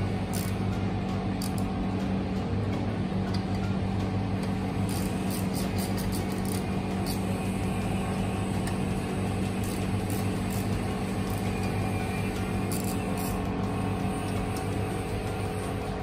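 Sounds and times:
steady low hum: 0.0s - 16.0s
ratchet clicking: 0.3s - 0.8s, 1.4s - 1.7s, 4.4s - 7.4s, 9.4s - 15.4s.

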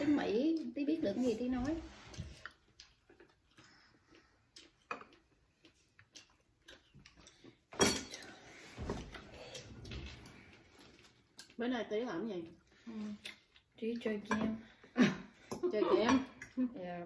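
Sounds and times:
quiet chewing: 0.4s - 7.7s, 8.4s - 11.6s, 12.3s - 14.9s.

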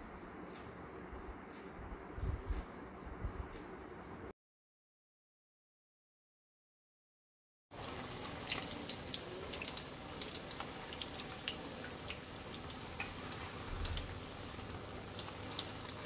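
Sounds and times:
batter sizzling in hot oil: 7.7s - 16.0s.

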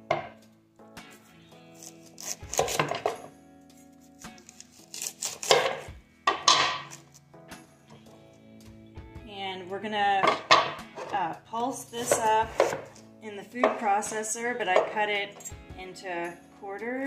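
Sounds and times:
knife cutting through cabbage: 1.6s - 7.2s, 12.0s - 13.0s.

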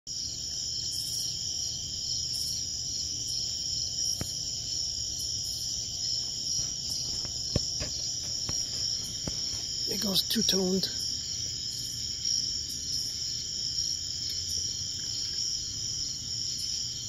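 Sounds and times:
night insects trilling: 0.1s - 17.0s.

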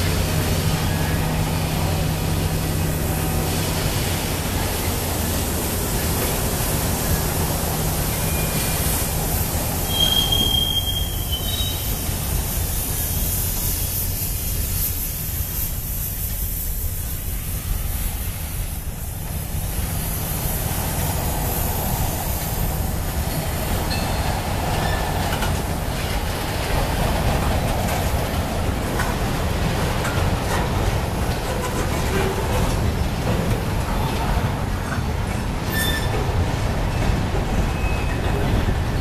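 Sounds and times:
freight train wheels rumbling: 0.0s - 39.0s
high wheel squeal: 7.0s - 13.6s, 23.9s - 25.6s, 35.6s - 39.0s.

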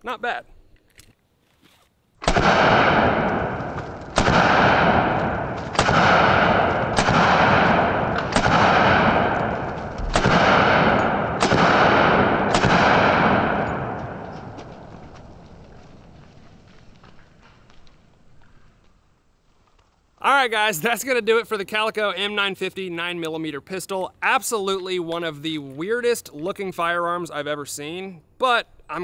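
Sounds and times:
pistol shots echoing: 2.2s - 15.0s.

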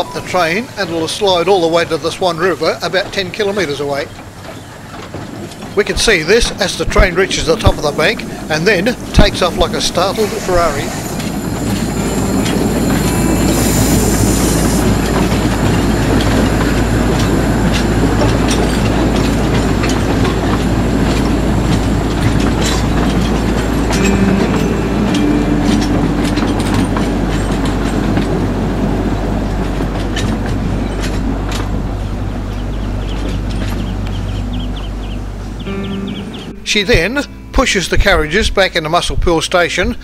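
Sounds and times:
train wheels clattering over rails: 0.0s - 36.3s
high squeal: 7.1s - 16.0s.

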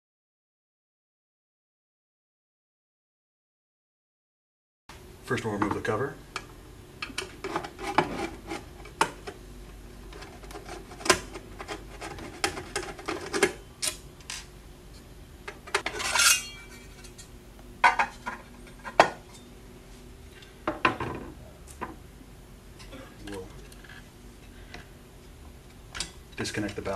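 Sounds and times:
metal scraping: 15.9s - 17.2s.

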